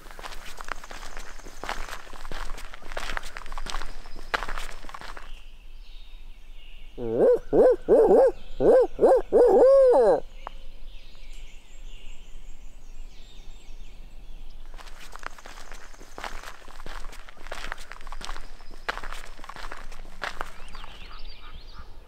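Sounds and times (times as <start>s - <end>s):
footsteps in leaves: 0.0s - 5.4s, 14.7s - 21.1s
faint songbirds: 0.0s - 22.0s
owl hoots: 7.0s - 10.3s.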